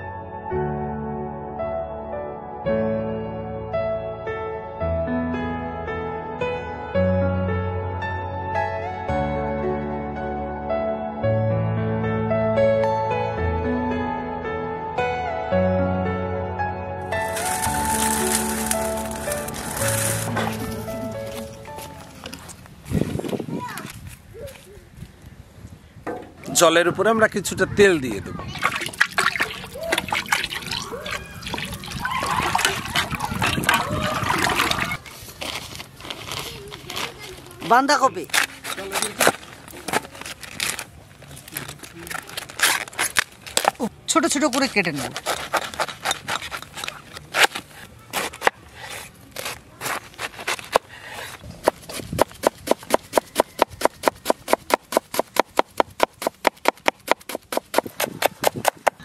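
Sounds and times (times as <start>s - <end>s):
water sloshing in pot: 28.5s - 35.0s
oil trickling into pot: 28.7s - 34.8s
knife chopping cabbage on wood: 45.0s - 59.0s.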